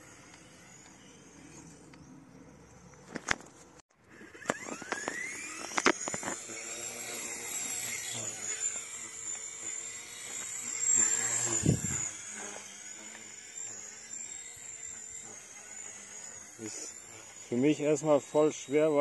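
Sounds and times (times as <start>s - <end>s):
toy helicopter rotor whine: 0.0s - 19.0s.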